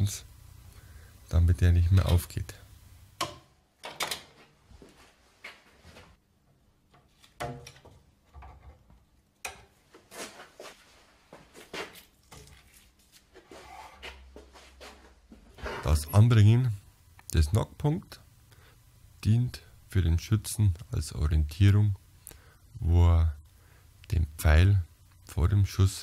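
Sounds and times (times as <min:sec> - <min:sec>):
knocks and clicks of handling tools: 0:03.2 - 0:04.5, 0:06.5 - 0:10.0.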